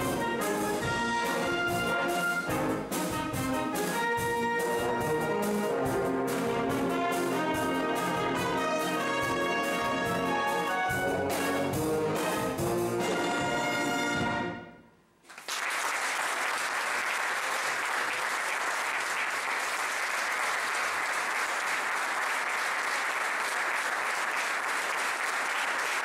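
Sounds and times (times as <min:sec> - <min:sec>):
wind band playing chords: 0:00.0 - 0:14.8
audience applause: 0:15.2 - 0:26.0.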